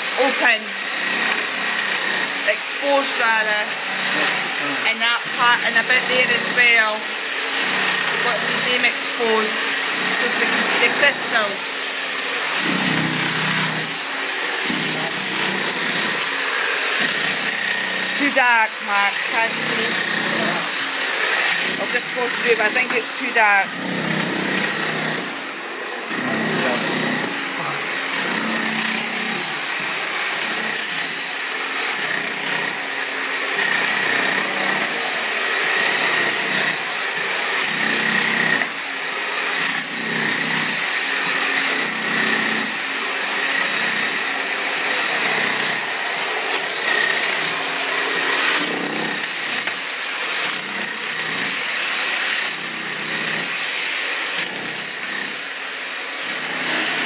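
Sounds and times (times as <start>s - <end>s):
jackhammer breaking rock: 12.6s - 14.0s, 14.6s - 16.2s, 21.4s - 25.3s, 37.6s - 38.8s, 39.6s - 42.7s, 46.5s - 49.8s.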